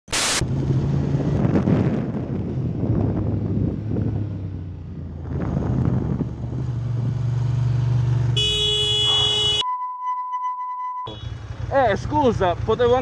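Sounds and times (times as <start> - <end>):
wind on microphone: 0.5 - 7.2
horn sounding: 8.4 - 11.4
motorcycle engine running: 11.1 - 13.0.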